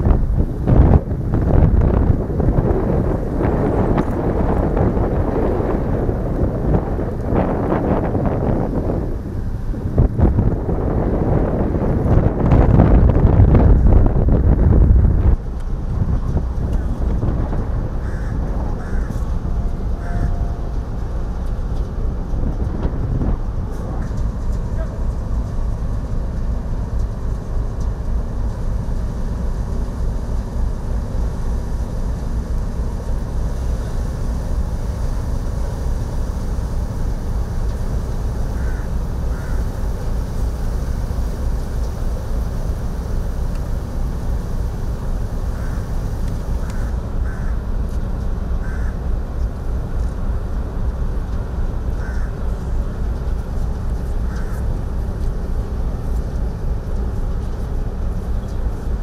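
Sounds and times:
steady low rumble: 0.0 - 59.0
crow cawing: 18.0 - 19.2, 38.6 - 39.6, 45.6 - 45.9, 46.6 - 47.6, 48.6 - 49.0, 52.0 - 52.4, 54.3 - 54.6.

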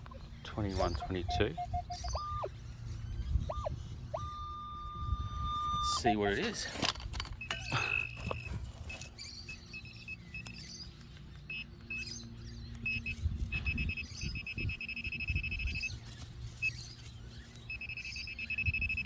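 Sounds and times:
metal detector probe beeping: 0.8 - 2.5, 3.5 - 10.8, 11.5 - 19.0
probe rustling through grass: 12.8 - 14.4, 15.7 - 18.3.

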